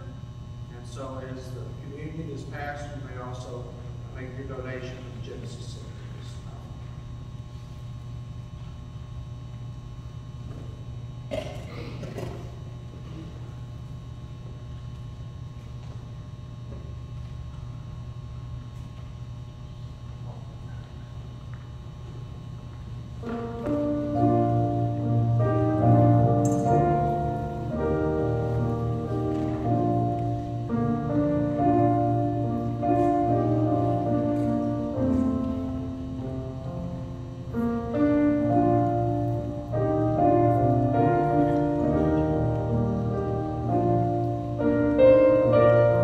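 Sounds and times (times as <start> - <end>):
electric keyboard piano chords: 23.2 - 46.0.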